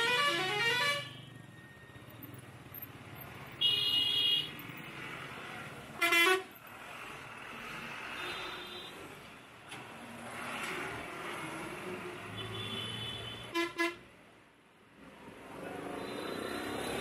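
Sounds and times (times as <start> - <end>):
steady horn blast: 0.0 - 1.1
musical vehicle horn: 0.0 - 1.2, 6.0 - 6.5, 12.4 - 14.0.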